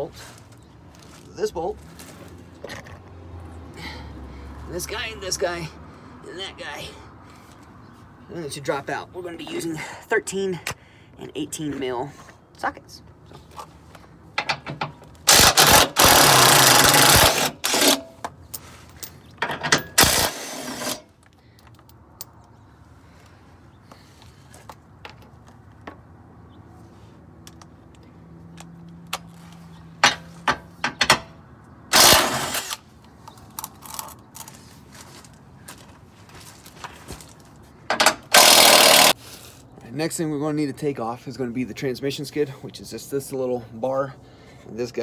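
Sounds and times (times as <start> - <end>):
impact wrench hammering bolts: 14.4 - 18.2, 30.0 - 31.3, 31.9 - 32.7, 37.9 - 39.2.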